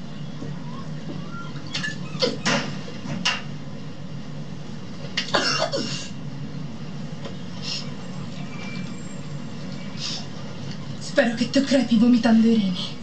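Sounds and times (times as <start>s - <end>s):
woman coughing: 5.3s - 6.2s.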